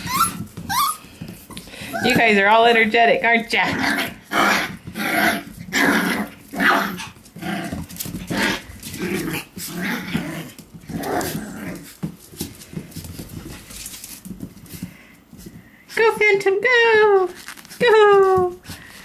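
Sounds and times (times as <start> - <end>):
puppies vocalising: 0.0 - 2.4.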